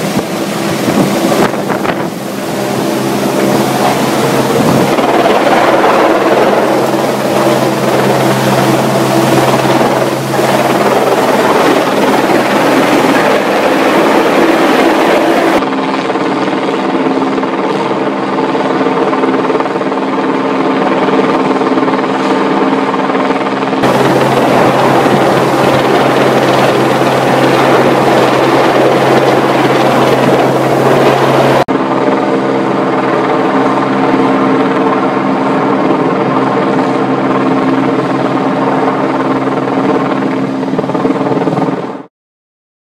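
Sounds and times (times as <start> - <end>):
loud rushing noise: 0.0 - 16.5, 23.8 - 31.7
helicopter rotor drone: 0.0 - 42.1.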